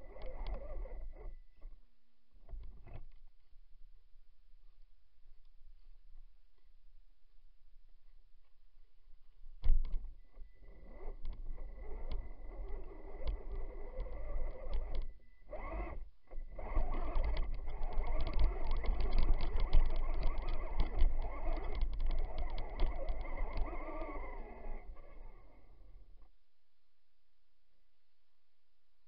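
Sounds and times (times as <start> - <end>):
electric motor whine: 10.4 - 25.9
rapid clicking: 10.9 - 25.3.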